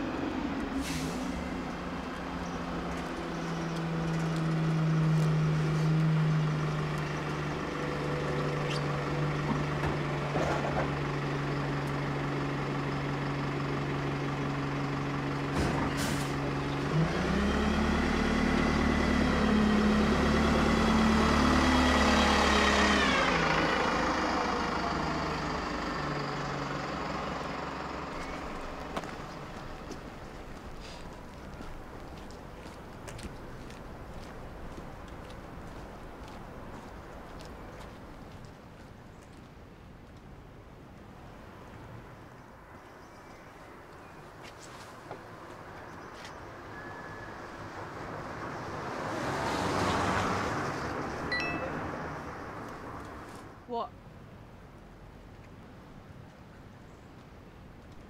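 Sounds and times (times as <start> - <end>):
bus engine droning and revving: 0.0 - 32.1, 45.0 - 53.8.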